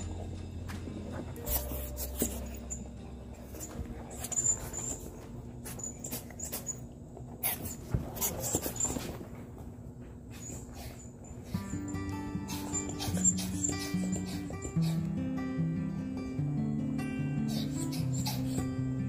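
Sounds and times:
dogs scuffing and knocking: 3.4s - 10.8s.

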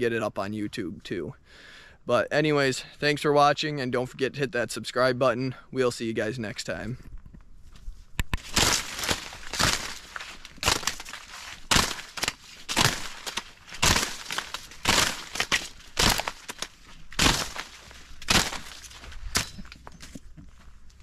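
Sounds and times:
footsteps crunching dry corn leaves: 7.6s - 21.0s.

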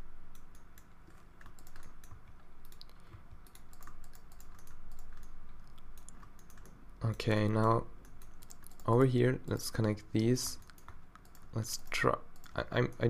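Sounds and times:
keyboard keys clicking: 0.3s - 9.0s.

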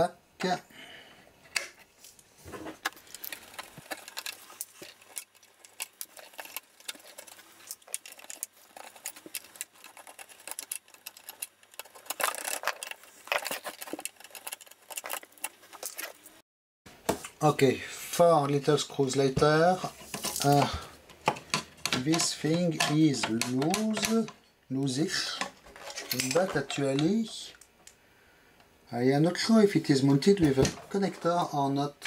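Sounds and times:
screwdriver clicks and scrapes: 2.8s - 16.2s.

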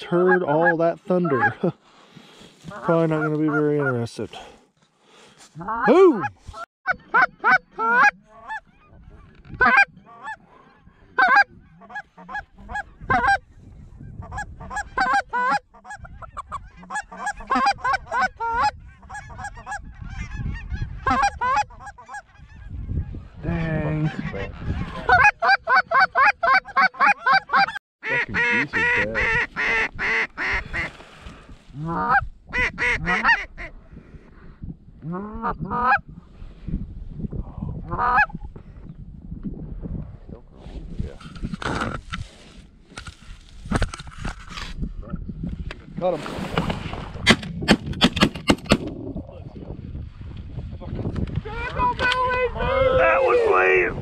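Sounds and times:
geese honking: 0.0s - 1.6s, 2.7s - 4.1s, 6.9s - 13.4s, 14.2s - 22.8s, 24.0s - 30.9s.

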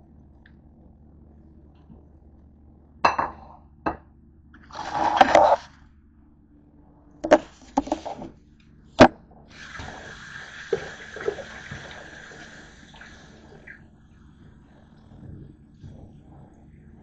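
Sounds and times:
plate scraping on counter: 4.7s - 5.7s, 7.2s - 8.3s.

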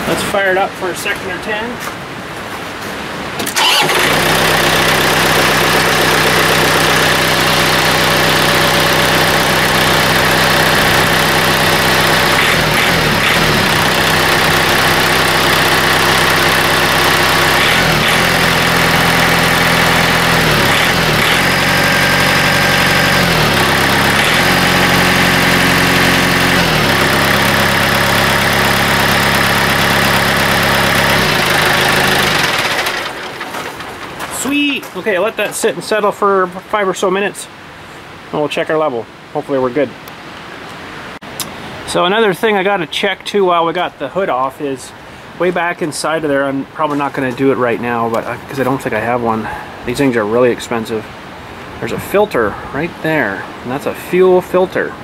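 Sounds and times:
diesel engine running: 3.4s - 35.6s.

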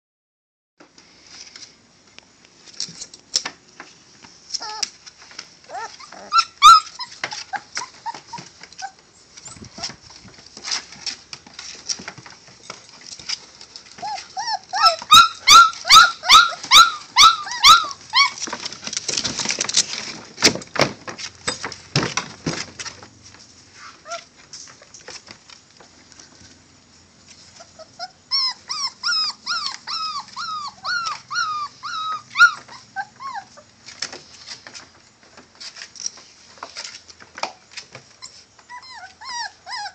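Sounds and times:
puppies whimpering and squealing: 4.6s - 4.9s, 5.7s - 10.0s, 14.0s - 18.6s, 27.5s - 33.7s, 38.2s - 39.9s.

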